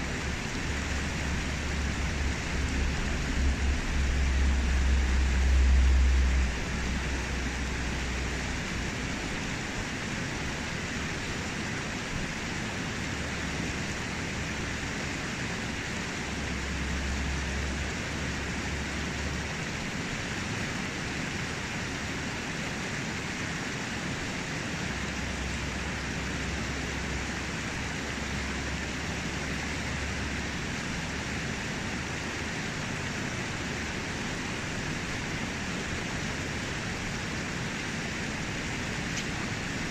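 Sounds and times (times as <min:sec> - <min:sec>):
low rumble: 0:00.0 - 0:09.6
river rushing over rocks: 0:00.0 - 0:39.9.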